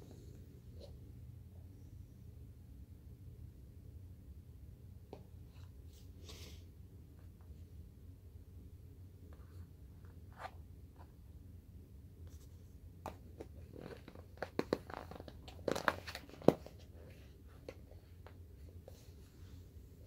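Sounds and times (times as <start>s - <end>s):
rustling and crinkling: 12.3s - 20.0s.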